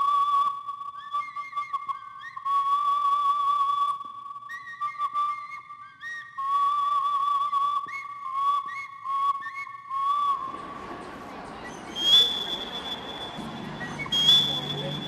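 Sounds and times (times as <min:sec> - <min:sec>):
whistle-like tune: 0:00.0 - 0:15.0
murmur of outdoor crowd: 0:10.4 - 0:15.0
sharp high tone: 0:11.9 - 0:15.0.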